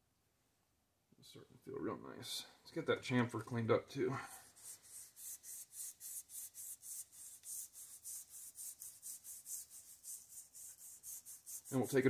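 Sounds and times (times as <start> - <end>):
metal rasping on sandpaper: 4.3 - 12.0.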